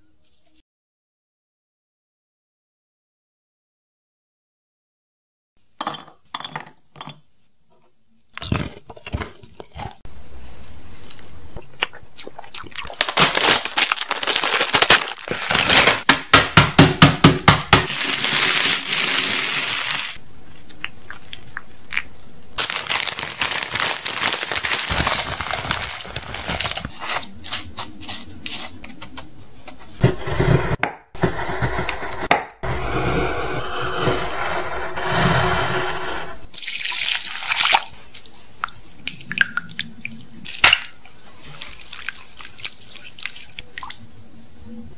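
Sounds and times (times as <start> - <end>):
cookies crunching and cracking: 8.3 - 10.1, 11.1 - 16.1, 17.9 - 29.2, 39.6 - 43.7
plastic bag crinkling: 12.8 - 16.1, 17.9 - 20.2, 22.6 - 28.2.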